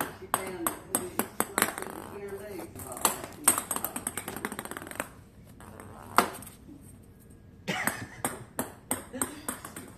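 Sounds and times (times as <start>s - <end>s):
ping pong ball bouncing on wood floor: 0.0s - 2.2s, 2.8s - 6.4s, 7.8s - 9.9s.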